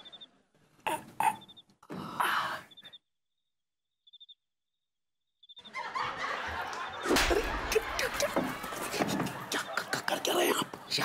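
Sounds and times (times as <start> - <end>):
faint high chirps: 0.0 - 4.5, 5.3 - 5.8
laugh-track laughter: 5.6 - 11.0.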